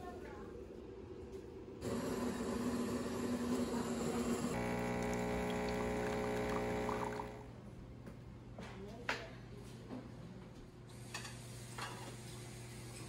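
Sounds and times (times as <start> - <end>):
water running through plumbing: 0.8 - 7.5.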